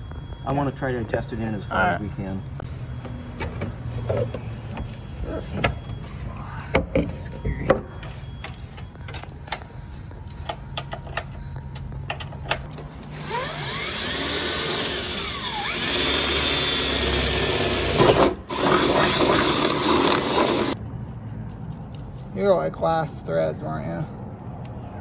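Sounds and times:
cordless drill whining: 13.1 - 20.8.

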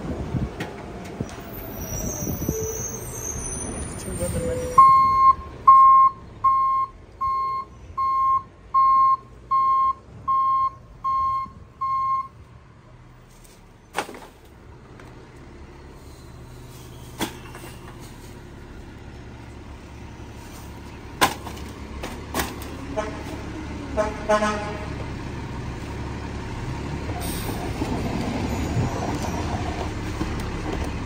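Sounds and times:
truck back-up alarm beeping: 2.9 - 12.4
truck engine idling hum: 4.2 - 27.5.

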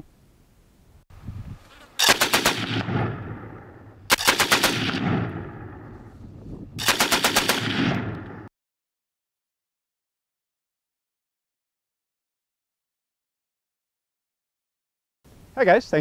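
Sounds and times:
machine gun bursts: 2.0 - 2.8, 4.1 - 5.0, 6.8 - 7.9
gunfire echo: 2.0 - 6.1, 6.8 - 8.5.

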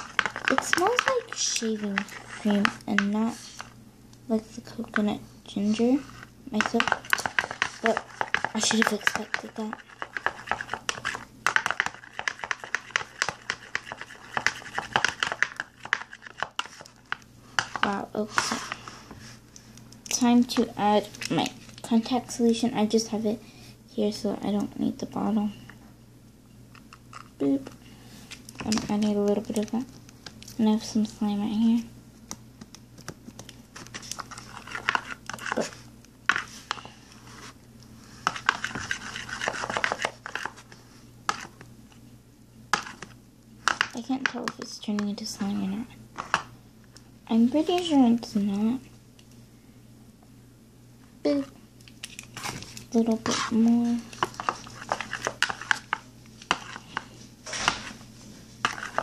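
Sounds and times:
plastic spoon stirring slime: 0.0 - 23.0, 26.7 - 41.7, 42.7 - 46.5, 47.3 - 48.7, 51.2 - 59.0.

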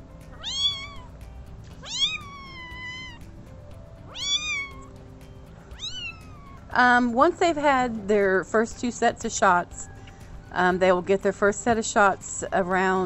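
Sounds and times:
kitten mewing: 0.3 - 1.1, 1.8 - 3.2, 4.1 - 5.0, 5.8 - 6.8.

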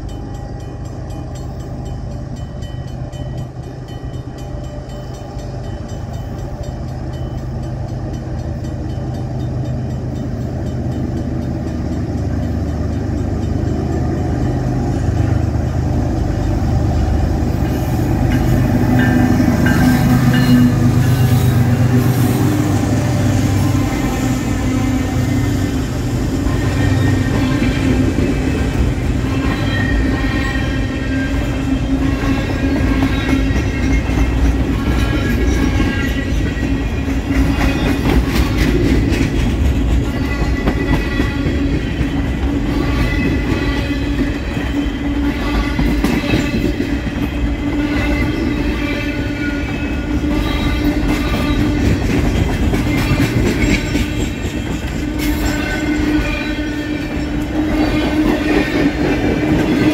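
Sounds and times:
train wheels clicking over rail joints: 31.4 - 45.0, 50.8 - 56.3.

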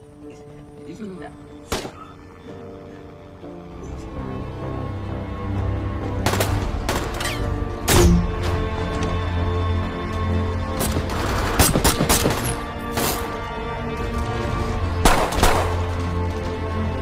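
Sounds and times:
tense music score with drone: 0.0 - 17.0
gunshots: 11.1 - 13.2, 15.0 - 16.0.

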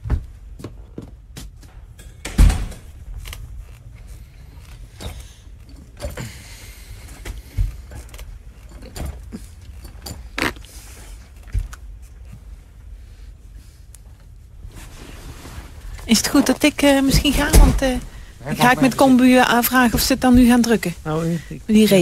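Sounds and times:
low steady rumble: 11.4 - 22.0.

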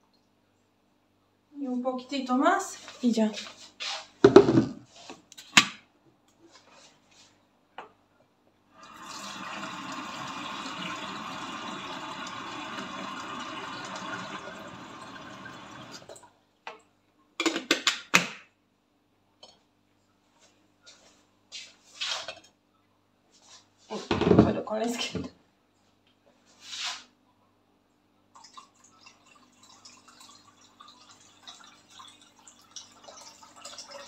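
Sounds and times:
water running from a tap: 8.8 - 16.2, 28.4 - 34.0.

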